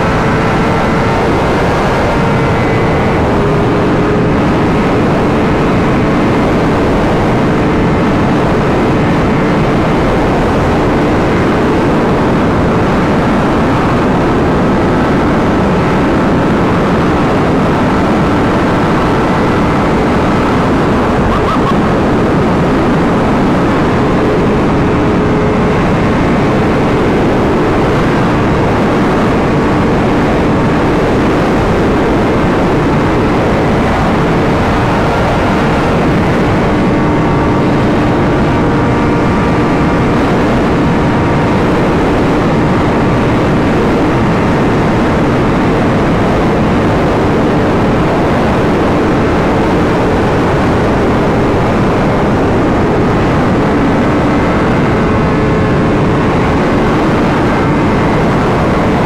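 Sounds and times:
motorcycle engine: 0:00.0 - 0:47.1
wind rush on microphone: 0:00.0 - 0:59.0.

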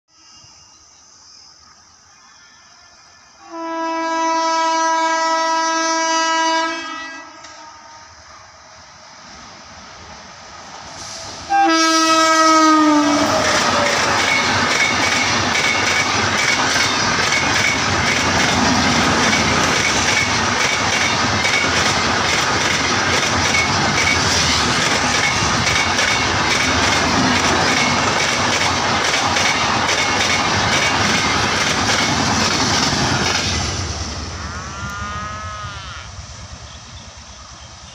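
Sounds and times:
train wheels rushing on rail: 0:07.3 - 0:34.8, 0:36.2 - 0:37.9.

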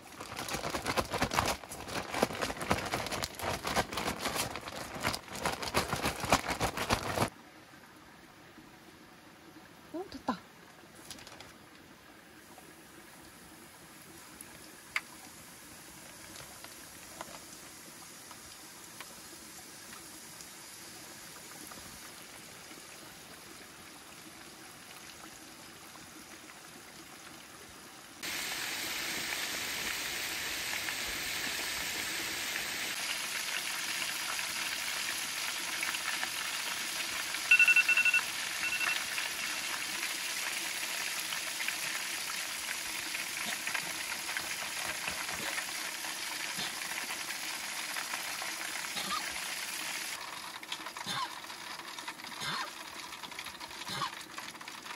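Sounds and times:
oil bubbling and sizzling: 0:12.4 - 0:54.9
short high beeps: 0:37.5 - 0:39.0.

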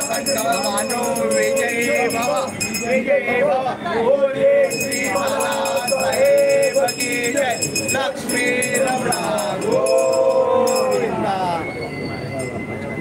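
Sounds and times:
group singing chant: 0:00.0 - 0:11.5
small metal percussion strikes: 0:04.7 - 0:11.1.

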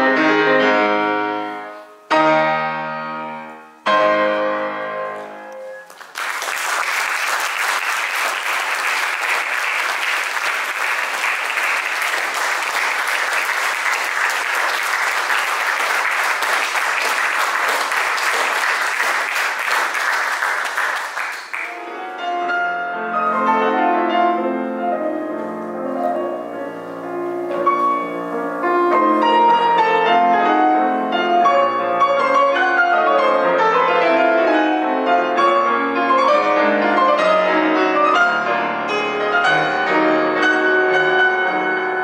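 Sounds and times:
grand piano chords: 0:00.0 - 0:06.0, 0:21.5 - 0:42.0
audience applause: 0:05.8 - 0:21.8.

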